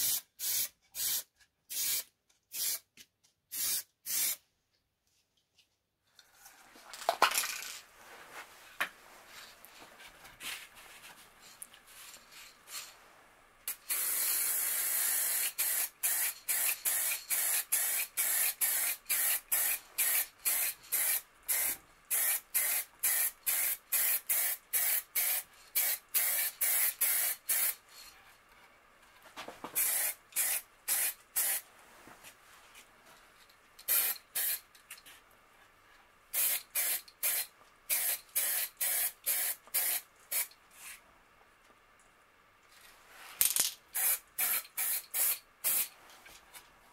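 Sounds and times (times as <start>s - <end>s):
spray paint hissing: 0.0s - 2.9s, 3.5s - 4.4s, 13.7s - 27.8s, 29.8s - 31.6s, 33.9s - 34.6s, 36.4s - 40.5s, 44.0s - 45.9s.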